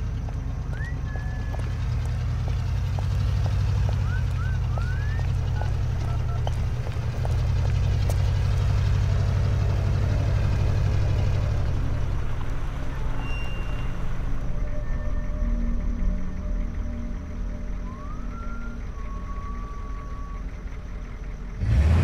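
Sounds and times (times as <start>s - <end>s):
footsteps clicking: 0.0s - 9.9s
truck engine rumbling: 0.0s - 22.0s
man whistling: 0.7s - 2.0s, 4.0s - 6.5s, 13.2s - 14.0s, 17.7s - 20.7s.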